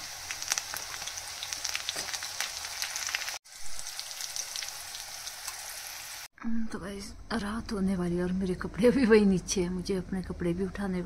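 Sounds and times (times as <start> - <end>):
onions sizzling in hot oil: 0.0 - 6.3.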